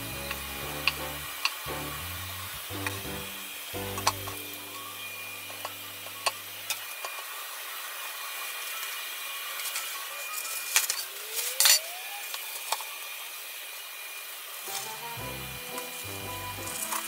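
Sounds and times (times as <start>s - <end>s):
paper towel rustling: 14.6s - 15.2s.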